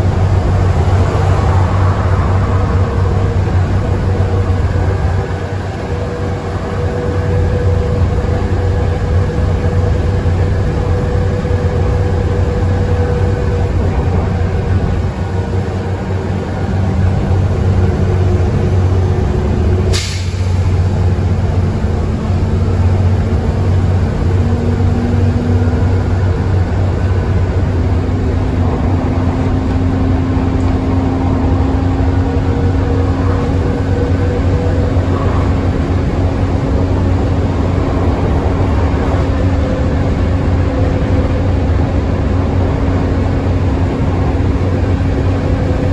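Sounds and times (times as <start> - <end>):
bus diesel engine drone: 0.0 - 45.9
air hiss: 19.9 - 20.8.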